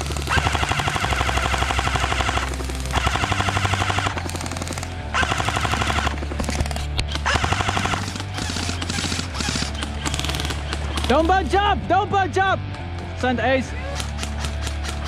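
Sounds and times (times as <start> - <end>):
airsoft rifle bursts: 0.0 - 11.3.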